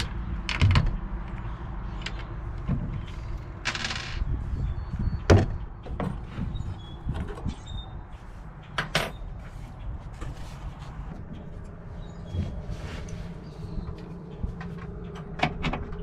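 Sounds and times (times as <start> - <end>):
low rumble: 0.0 - 8.1, 10.0 - 16.0
cabinet door knocks and clicks: 5.3 - 6.2.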